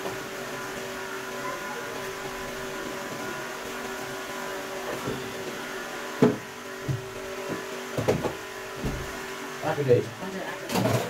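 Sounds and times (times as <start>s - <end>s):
soft thump: 8.0s - 9.1s.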